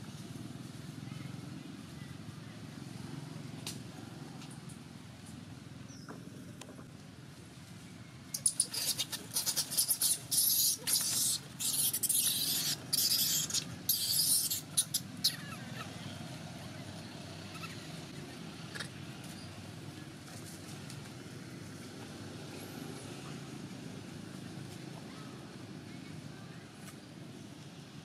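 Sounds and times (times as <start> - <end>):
faint squeak: 8.4 - 16.2
infant monkey screaming: 8.4 - 16.2, 17.5 - 17.9.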